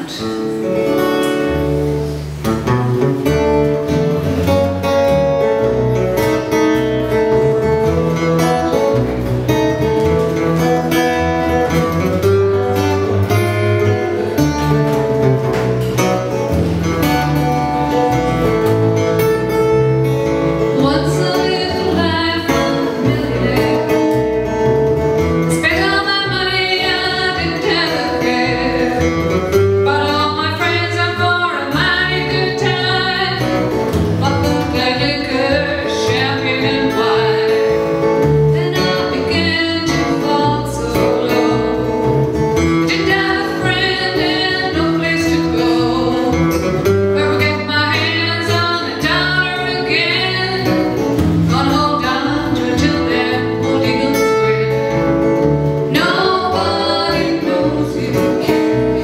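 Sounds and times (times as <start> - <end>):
acoustic guitar fingerpicking: 0.0 - 59.0
electric bass guitar line: 0.0 - 59.0
woman singing: 20.6 - 24.5, 25.5 - 55.0, 55.8 - 59.0.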